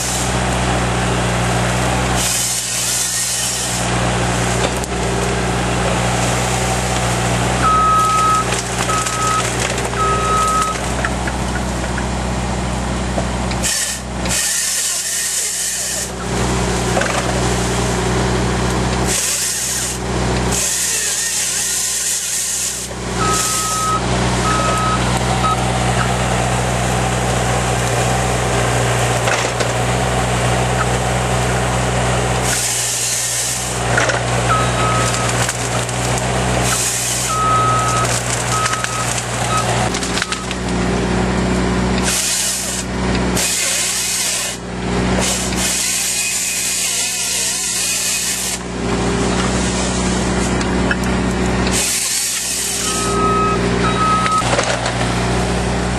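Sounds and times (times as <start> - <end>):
diesel engine running: 0.0 - 55.9
hydraulic chainsaw cutting trees: 0.0 - 55.9
short electronic beeps: 7.6 - 10.8, 23.2 - 25.6, 34.5 - 35.4, 37.2 - 40.5, 52.8 - 54.5.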